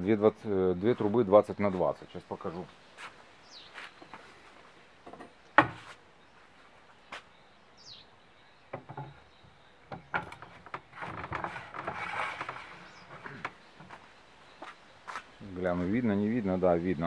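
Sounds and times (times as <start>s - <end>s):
metal scraping: 10.1s - 13.6s.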